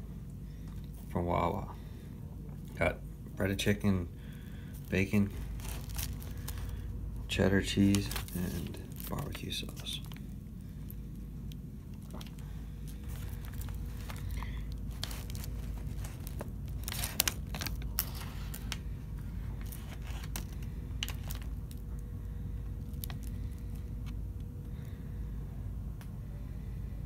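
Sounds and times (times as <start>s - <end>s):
low hum: 0.0s - 27.0s
paper wrapper rustling: 4.8s - 10.2s, 11.9s - 22.0s.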